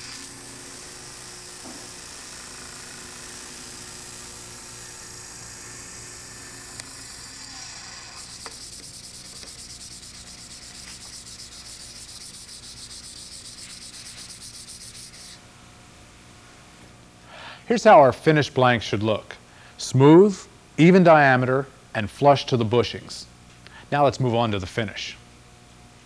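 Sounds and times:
sandpaper rubbing wood: 7.4 - 15.4.

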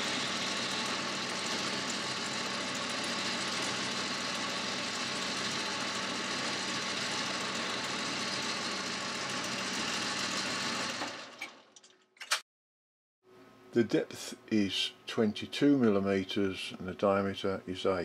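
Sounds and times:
lathe boring steel: 0.0 - 11.7.

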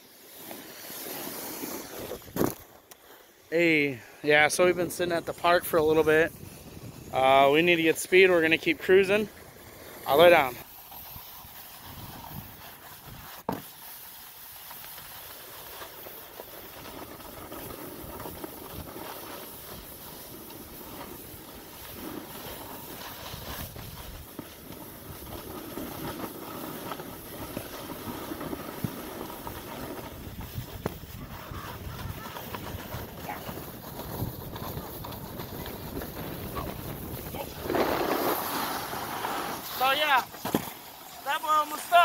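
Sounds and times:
snowboard scraping over snow: 0.0 - 42.0
wind rushing on microphone: 5.3 - 7.2, 30.1 - 38.1.

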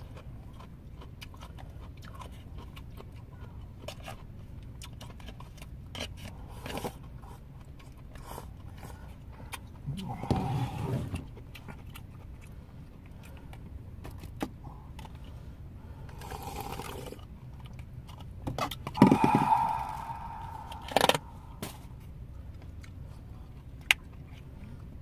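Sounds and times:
low hum: 14.6 - 25.0
soup slurping: 16.2 - 17.2.

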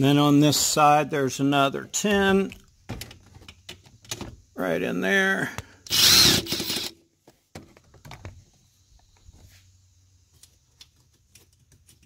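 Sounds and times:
power driver spinning out bolt: 5.9 - 6.9.

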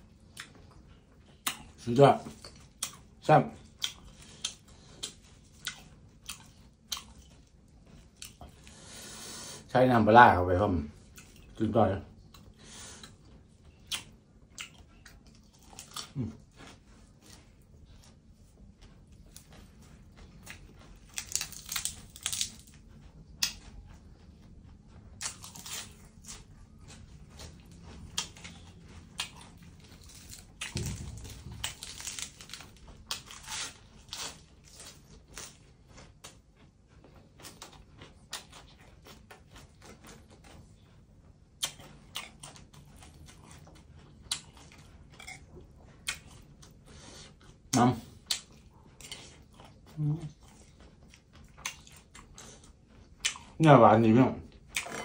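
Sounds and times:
crunching and chewing: 0.0 - 55.0
lettuce tearing: 21.0 - 22.8, 29.2 - 35.6.

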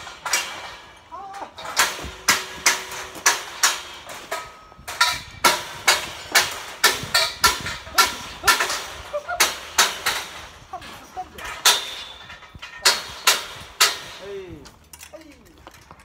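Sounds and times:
scaffolding clanging: 0.0 - 16.0.

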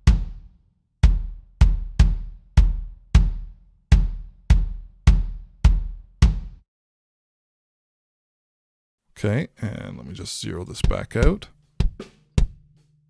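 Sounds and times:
kick drum hits: 0.0 - 6.6, 10.9 - 12.6.

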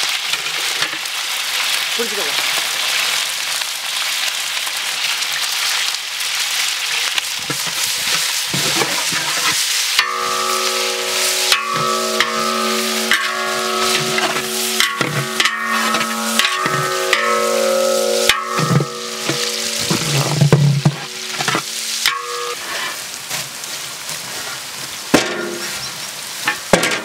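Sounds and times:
onions sizzling in oil: 0.0 - 27.0
metal spatula scraping pot: 7.7 - 23.5
steady tones: 10.0 - 23.3.

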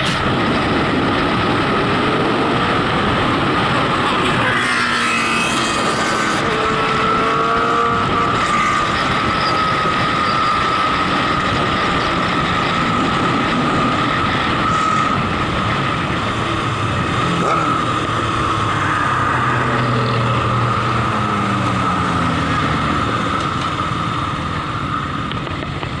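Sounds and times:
motorcycle engine: 0.0 - 26.0
wind rush: 0.0 - 26.0
steady high tone: 4.6 - 25.2.

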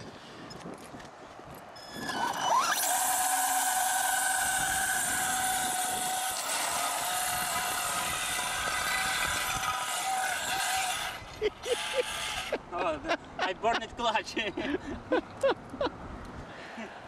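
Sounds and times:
block dragging across asphalt: 1.8 - 12.6
electric motor whining: 1.8 - 12.6.

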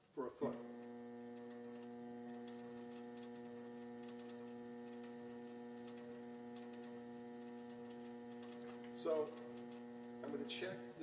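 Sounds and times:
potter's wheel motor hum: 0.0 - 11.0
faint ticks: 0.8 - 10.5.

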